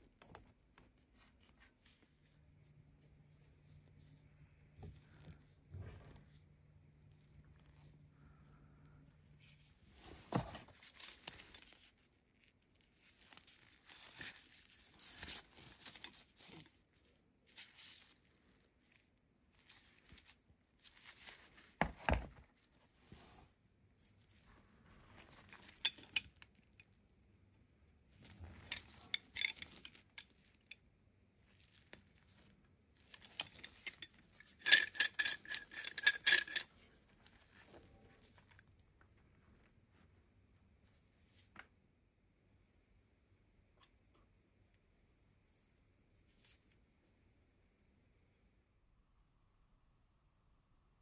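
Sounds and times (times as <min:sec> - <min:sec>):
metal clamp clinks and knocks: 0:25.3 - 0:26.9, 0:28.2 - 0:30.8, 0:33.0 - 0:36.8.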